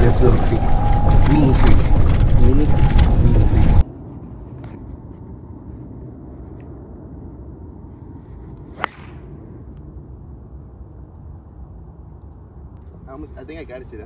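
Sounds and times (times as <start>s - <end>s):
outdoor background noise: 0.0s - 14.0s
golf club hitting ball: 8.8s - 9.3s.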